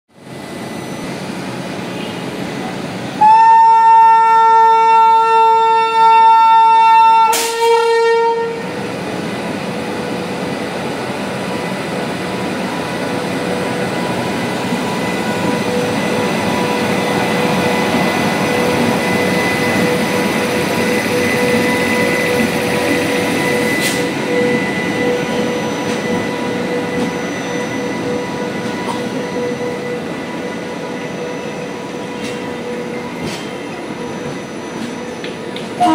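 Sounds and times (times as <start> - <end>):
train rolling past: 0.2 - 35.9
locomotive horn blasts: 3.2 - 8.7.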